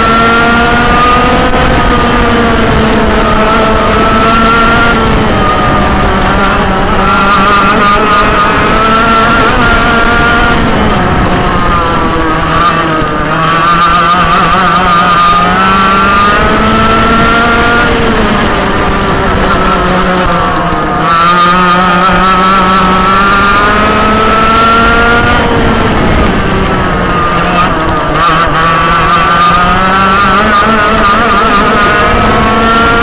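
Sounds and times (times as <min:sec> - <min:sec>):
kart engine racing: 0:00.0 - 0:33.0
wind and track noise: 0:00.0 - 0:33.0.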